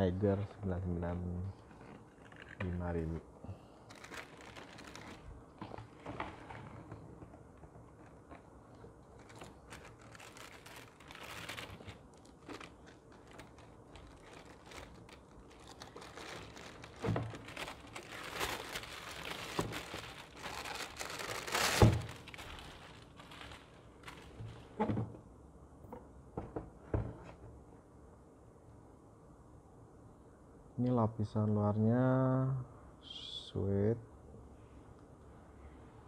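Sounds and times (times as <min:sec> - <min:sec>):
tissue paper rustling: 0:03.9 - 0:06.9, 0:09.0 - 0:24.8.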